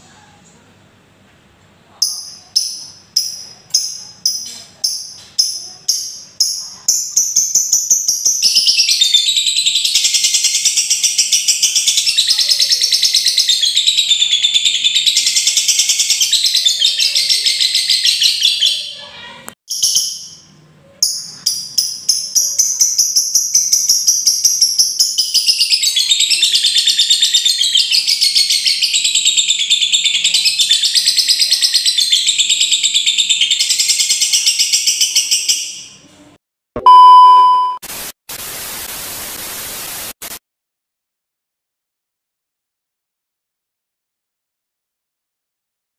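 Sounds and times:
lovebird chattering song: 0:02.0 - 0:19.0, 0:19.7 - 0:35.9.

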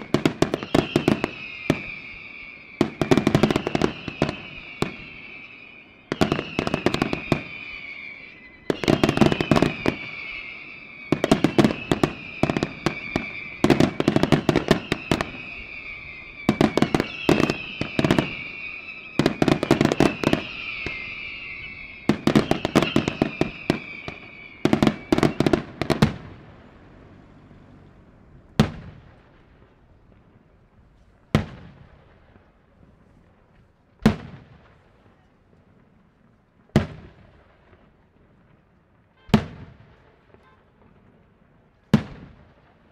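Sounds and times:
falling firework whistles: 0:00.0 - 0:29.8
fireworks bangs: 0:00.0 - 0:42.9.

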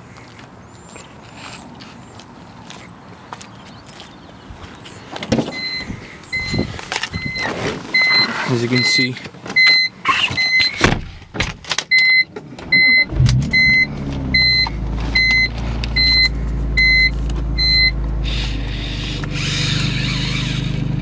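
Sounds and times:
dashboard warning chime beeping: 0:05.5 - 0:10.8, 0:11.9 - 0:18.0
car engine starting and idling: 0:11.0 - 0:21.0.

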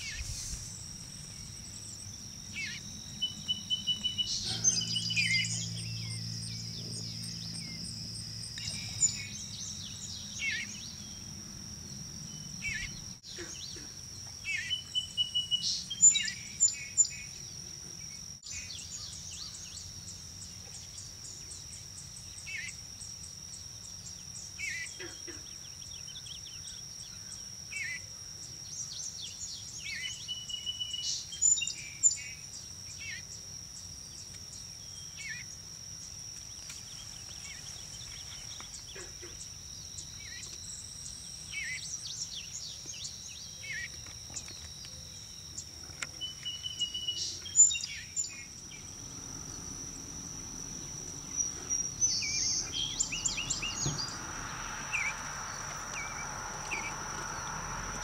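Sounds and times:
high-pitched insect drone: 0:00.0 - 0:58.0
bird chirps and calls: 0:02.5 - 0:11.1, 0:46.2 - 0:58.0.

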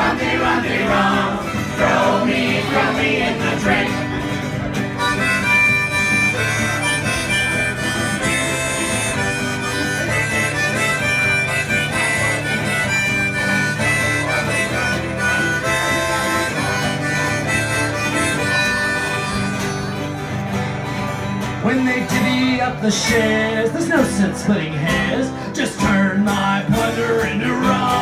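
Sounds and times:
acoustic guitar: 0:00.0 - 0:28.0
harmonica solo: 0:03.6 - 0:21.4.

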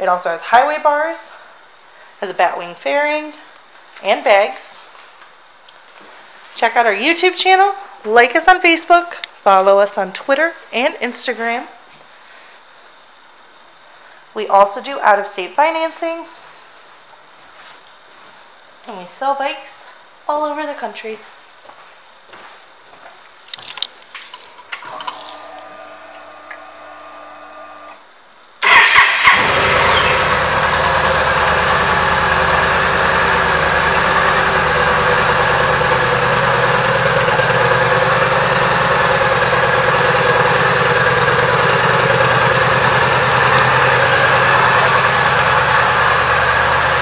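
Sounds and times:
faint steady hum: 0:00.0 - 0:28.6
motorcycle engine starting and idling: 0:24.8 - 0:28.0, 0:28.6 - 0:47.0.

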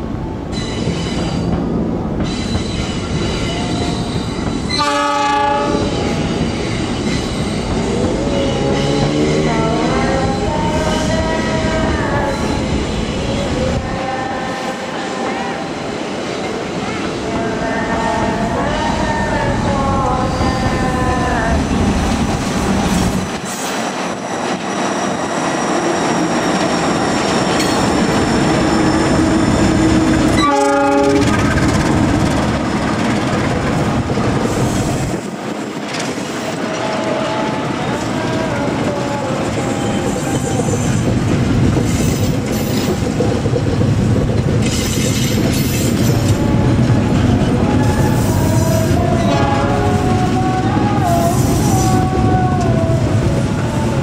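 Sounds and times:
train engine and wheel noise: 0:00.0 - 0:54.0
train horn blast: 0:04.7 - 0:06.2, 0:07.9 - 0:12.8, 0:13.7 - 0:15.8, 0:29.0 - 0:31.5, 0:36.5 - 0:41.0, 0:46.0 - 0:54.0.

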